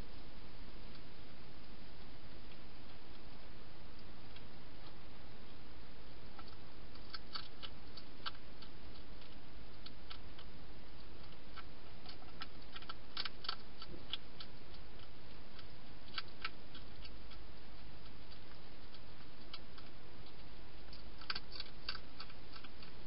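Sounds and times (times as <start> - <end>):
hedgehog chewing crunches: 3.9 - 23.0.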